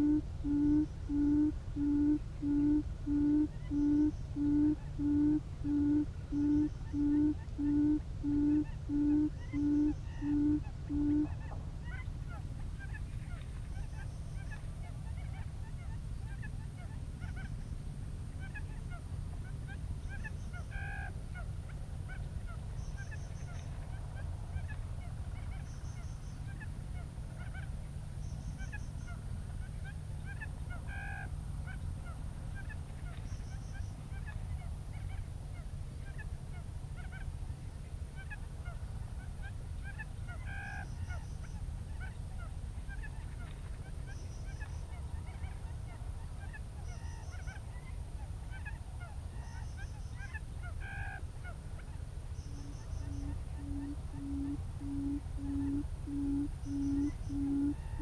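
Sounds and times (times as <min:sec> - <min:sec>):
quail calls from speaker: 0:00.0 - 0:17.5, 0:48.5 - 0:58.0
steady low rumble: 0:51.4 - 0:58.0.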